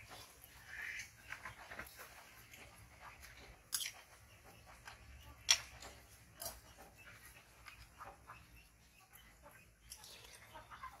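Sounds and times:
chewing and mouth sounds: 2.4s - 6.6s.

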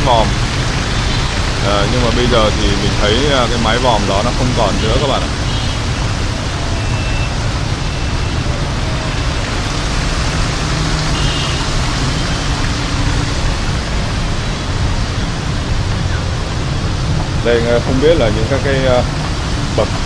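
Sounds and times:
fountain water spray: 0.0s - 20.0s
street traffic rumble: 0.0s - 20.0s.

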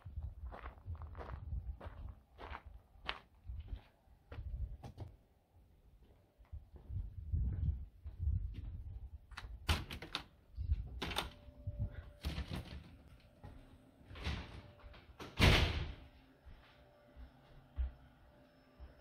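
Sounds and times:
door latch clicks and rattles: 9.3s - 10.4s.

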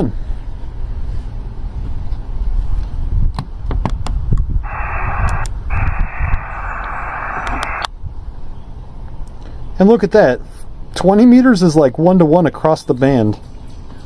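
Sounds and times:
radio receiver static hiss: 4.6s - 7.9s.

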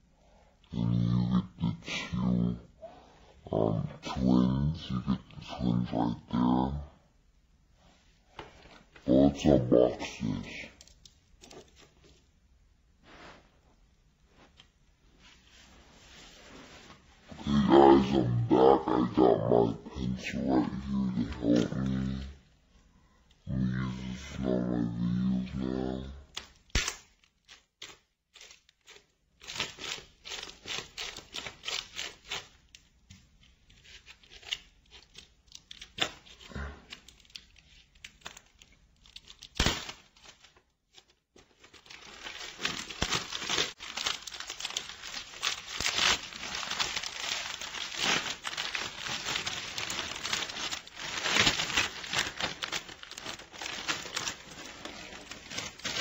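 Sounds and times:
plastic shrink wrap crinkling: 8.3s - 12.4s, 14.2s - 22.5s, 26.2s - 56.0s.

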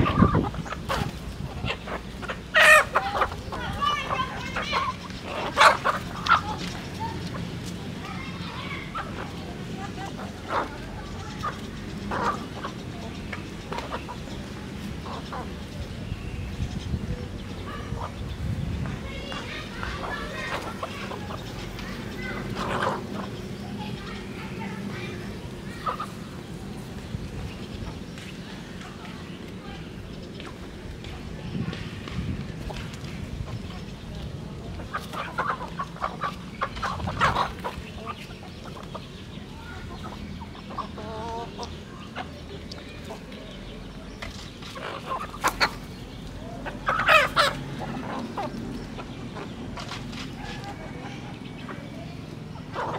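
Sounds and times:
drawn-out chicken call: 0.0s - 7.2s, 19.1s - 24.1s, 44.8s - 49.5s, 50.3s - 52.9s
chickens clucking: 0.0s - 52.9s.

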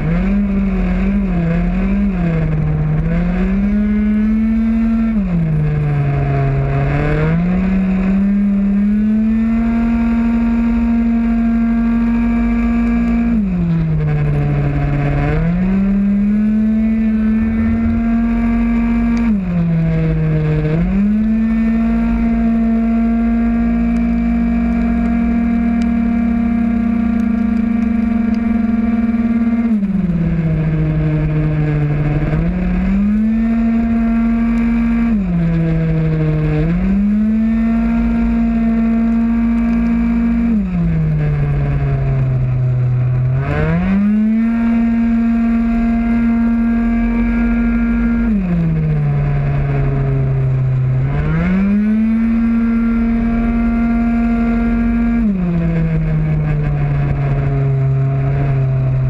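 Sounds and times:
scooter engine at full throttle: 0.0s - 59.0s
wind rush: 15.7s - 21.0s.

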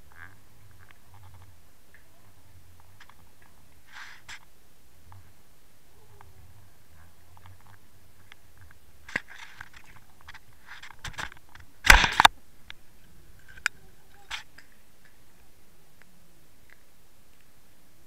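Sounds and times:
underwater clicks and scrapes: 3.0s - 4.5s, 7.0s - 12.3s.

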